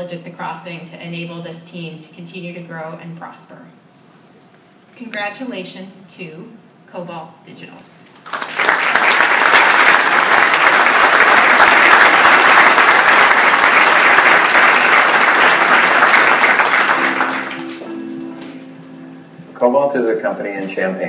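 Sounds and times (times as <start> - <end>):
audience applauding: 8.2 - 18.6.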